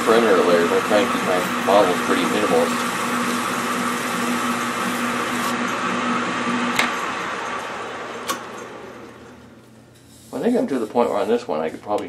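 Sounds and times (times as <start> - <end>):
metal lathe running: 0.0 - 9.3
sandpaper hissing on plastic: 10.0 - 12.0.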